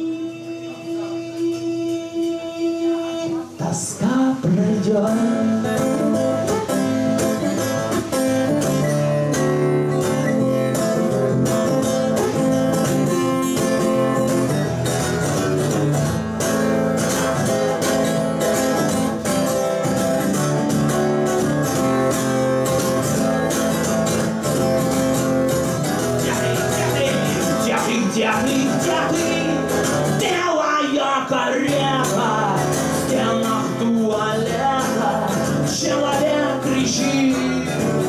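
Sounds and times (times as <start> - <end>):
acoustic guitar strumming: 0.0 - 38.0.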